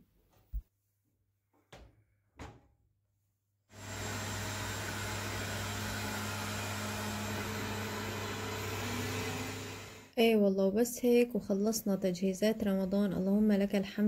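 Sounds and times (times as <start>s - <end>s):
robot vacuum whirring: 3.8s - 10.1s.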